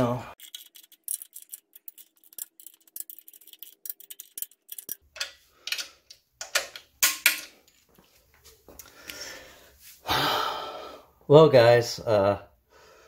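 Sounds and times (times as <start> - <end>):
socket wrench ratcheting: 0.4 - 7.3.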